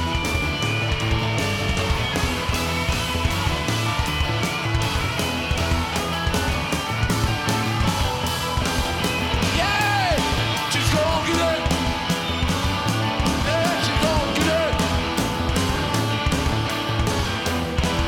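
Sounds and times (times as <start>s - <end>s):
drums with a steady beat: 0.0s - 18.0s
electric guitar: 0.0s - 18.0s
person yelling vocal phrases: 9.5s - 11.7s.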